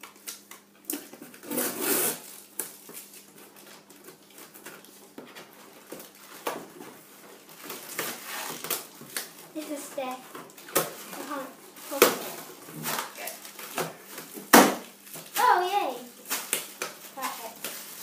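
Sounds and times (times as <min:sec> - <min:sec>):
scissors slicing packing tape: 0:00.2 - 0:02.8
cardboard flaps scraping: 0:07.7 - 0:08.8.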